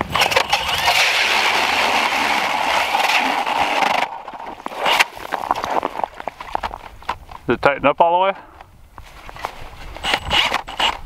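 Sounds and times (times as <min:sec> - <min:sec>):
ice auger scraping through ice: 0:00.0 - 0:06.7, 0:09.3 - 0:11.0.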